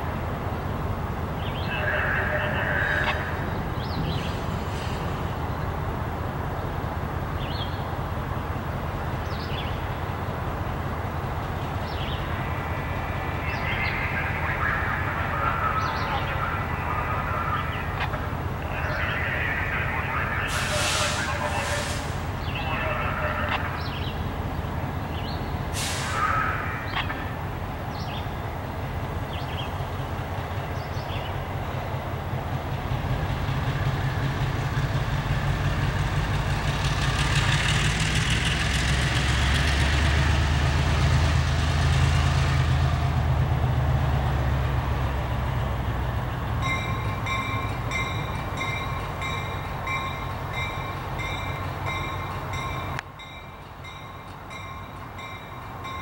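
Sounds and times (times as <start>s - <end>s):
locomotive diesel engine running: 0.0s - 56.0s
air hiss: 20.5s - 22.3s, 25.7s - 26.4s
locomotive bell ringing: 46.6s - 56.0s.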